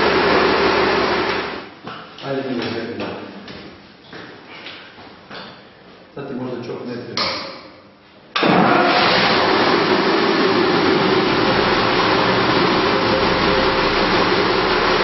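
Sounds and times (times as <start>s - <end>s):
diesel engine running loudly: 0.0s - 1.6s, 8.4s - 15.0s.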